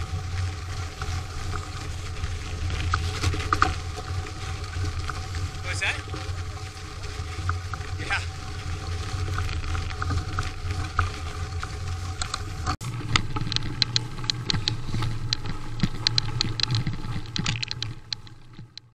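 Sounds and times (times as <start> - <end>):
sharp clicks and rattles: 0.0 - 18.9
tyres and wind rumble: 0.0 - 18.9.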